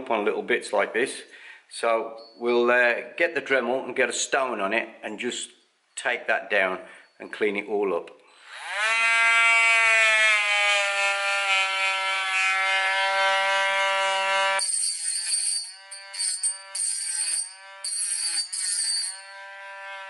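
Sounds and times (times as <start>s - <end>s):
rotary tool grinding whine: 8.4s - 20.0s
music with jingling percussion: 14.6s - 19.4s.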